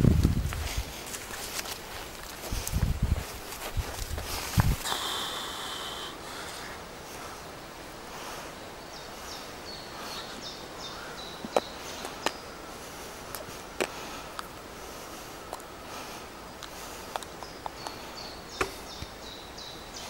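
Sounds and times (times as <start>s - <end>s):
small bird singing: 8.4s - 14.5s, 15.1s - 20.0s.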